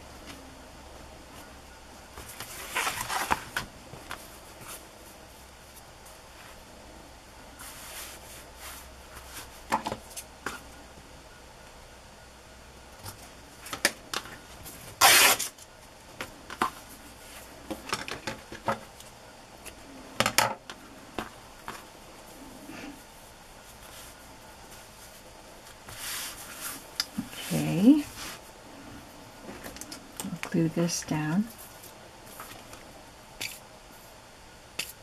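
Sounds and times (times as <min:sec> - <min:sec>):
cloth and paper rustling: 0:02.2 - 0:06.6, 0:23.6 - 0:28.5.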